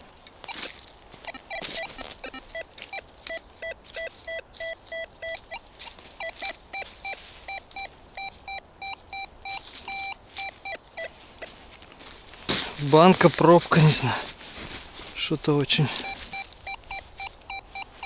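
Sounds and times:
metal detector beeping: 0:00.4 - 0:11.6, 0:15.6 - 0:18.0.

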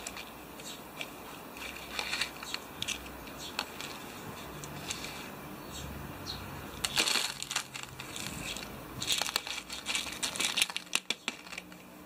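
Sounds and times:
gravel rattling against plastic truck: 0:06.8 - 0:11.8.

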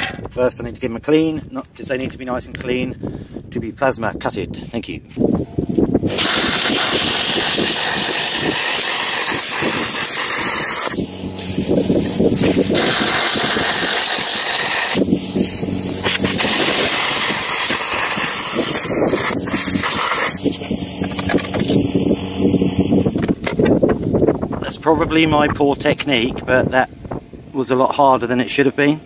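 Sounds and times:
compressor humming: 0:05.4 - 0:24.5
plasma cutter hissing: 0:06.0 - 0:23.2.

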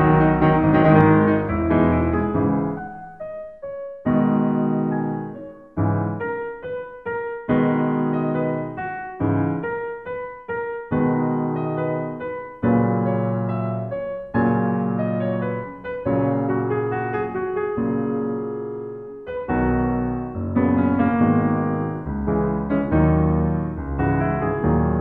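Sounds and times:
piano chords and notes: 0:00.0 - 0:25.0.

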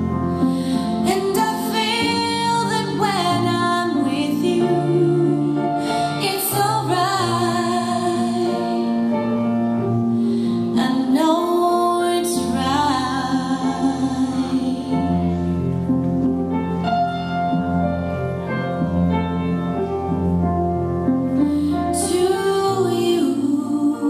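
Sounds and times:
instrumental accompaniment: 0:00.0 - 0:24.0.

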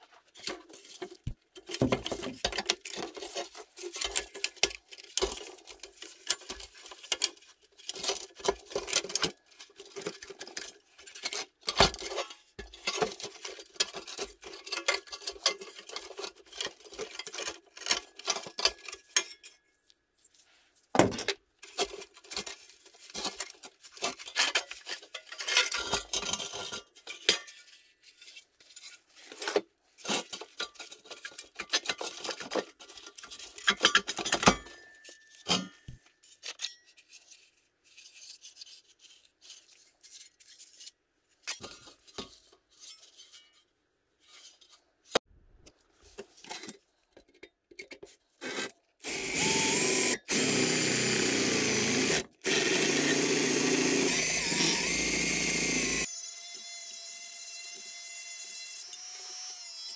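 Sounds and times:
metal parts clinking and scraping: 0:00.4 - 0:19.6, 0:21.2 - 0:44.8.

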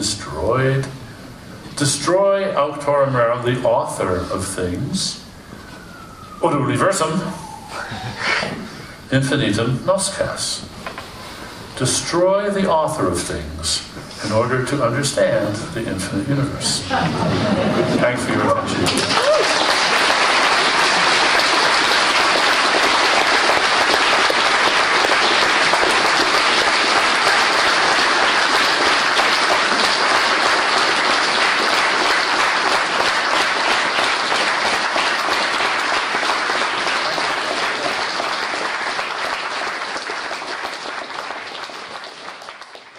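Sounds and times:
audience applauding: 0:17.1 - 0:42.9.

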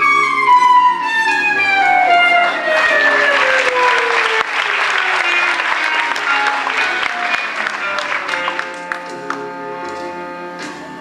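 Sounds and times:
background music: 0:00.0 - 0:11.0
audience applauding: 0:02.4 - 0:09.6.

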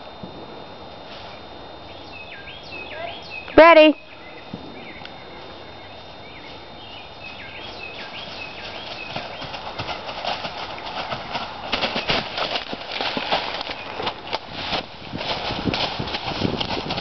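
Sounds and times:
bird chirping: 0:01.9 - 0:09.6
horse hoofbeats on leaves: 0:06.5 - 0:17.0.

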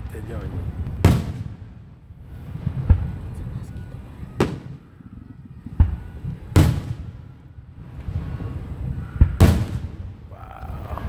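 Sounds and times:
fireworks bangs with echo: 0:00.8 - 0:03.4, 0:04.3 - 0:10.2.

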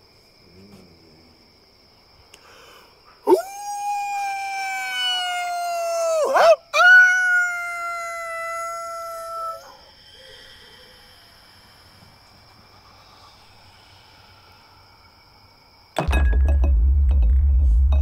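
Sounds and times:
quick breath: 0:02.4 - 0:03.2
man howling like a wolf: 0:03.3 - 0:09.8.

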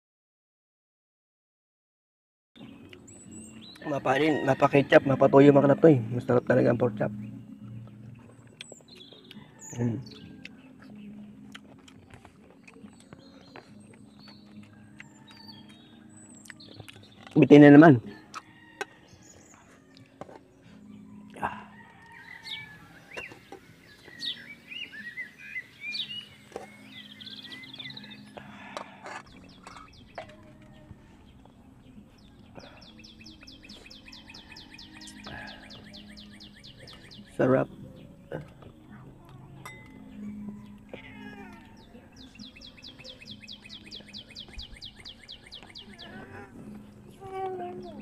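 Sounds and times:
birds chirping: 0:02.6 - 0:48.0
metal spoon scraping a pot: 0:28.7 - 0:30.4.

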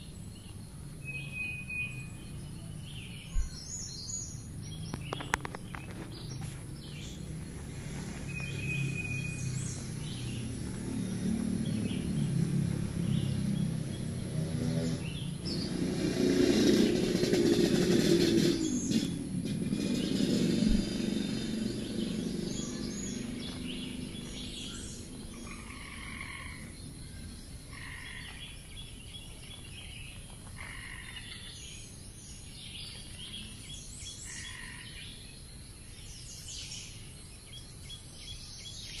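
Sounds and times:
birds chirping and calling: 0:00.0 - 0:39.0
loud bird call: 0:06.8 - 0:12.3, 0:12.9 - 0:27.0.

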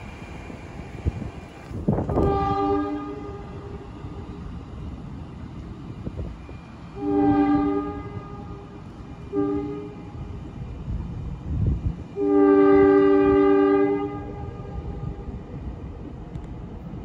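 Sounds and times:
train low rumble: 0:00.0 - 0:17.0
train horn blasts: 0:02.1 - 0:03.8, 0:07.0 - 0:10.3, 0:12.2 - 0:15.2.

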